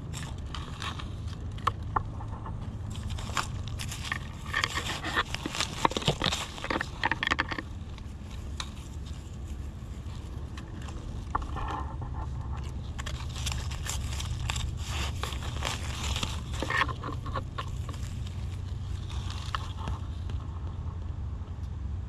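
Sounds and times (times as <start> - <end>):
soil and dry leaves crackling: 0.0 - 22.0
steady low rumble: 0.0 - 22.0.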